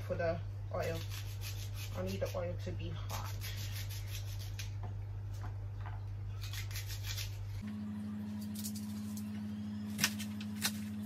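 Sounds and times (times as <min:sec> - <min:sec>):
low electrical hum: 0:00.0 - 0:11.0
knife slicing onion: 0:00.8 - 0:04.8, 0:06.4 - 0:07.6.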